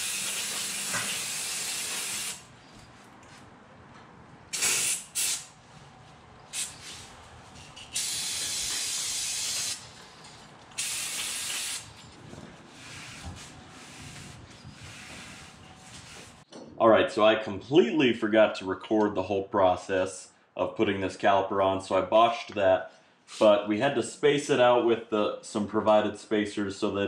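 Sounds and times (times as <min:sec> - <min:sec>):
aerosol spray hissing: 0:04.6 - 0:05.5, 0:06.6 - 0:06.9, 0:08.0 - 0:09.8, 0:10.8 - 0:11.9.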